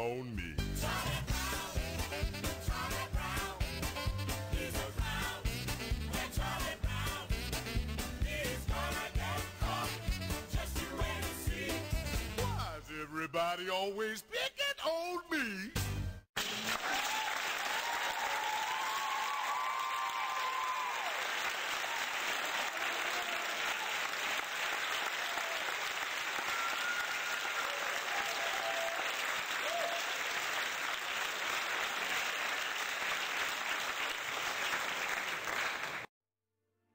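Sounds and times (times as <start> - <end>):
audience applause: 16.4 - 36.1.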